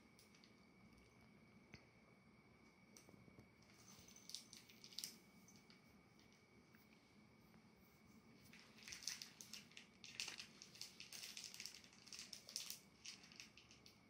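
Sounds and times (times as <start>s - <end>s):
small object crinkling in fingers: 3.0s - 6.4s, 8.4s - 14.0s.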